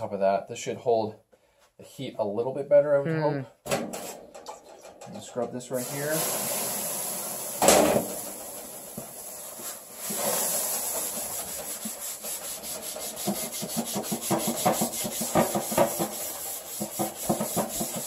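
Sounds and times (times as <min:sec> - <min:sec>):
water hissing on hot metal: 0:05.6 - 0:18.0
scouring pad scrubbing metal: 0:09.2 - 0:18.0.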